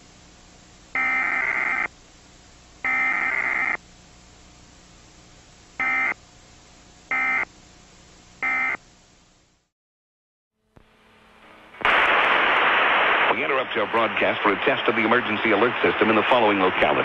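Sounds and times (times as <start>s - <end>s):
warbling two-tone data bursts: 1.0s - 1.9s.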